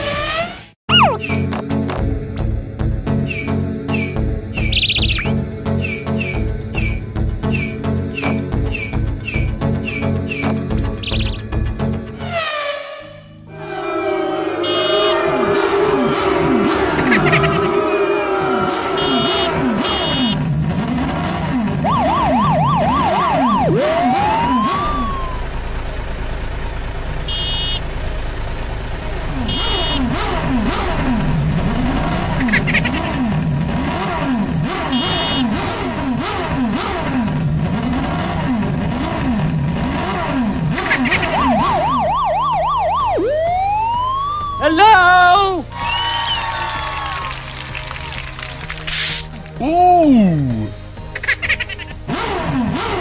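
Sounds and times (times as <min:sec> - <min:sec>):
warbling cartoon siren: 0:00.9 - 0:01.4, 0:04.6 - 0:05.4, 0:10.8 - 0:11.4, 0:13.5 - 0:20.4, 0:21.8 - 0:25.5, 0:40.8 - 0:45.3
rising whistle glides: 0:13.6 - 0:16.4, 0:21.9 - 0:25.4.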